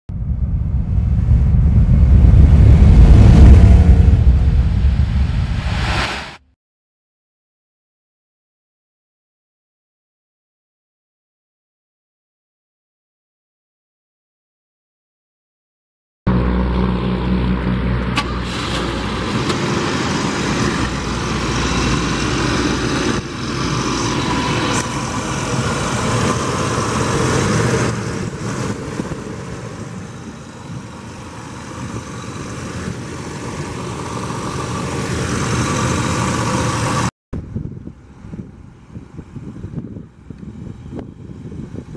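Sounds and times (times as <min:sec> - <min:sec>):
car engine idling: 0:17.3 - 0:37.1.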